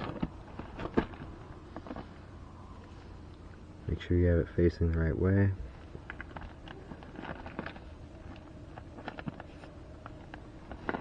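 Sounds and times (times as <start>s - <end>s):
light paper rustling: 5.8s - 11.0s.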